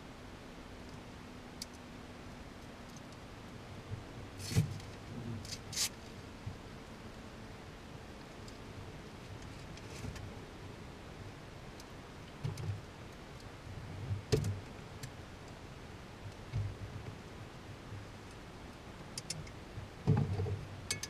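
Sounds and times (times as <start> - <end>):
faint steady hiss: 0.0 - 21.0
small clicks: 19.2 - 19.6.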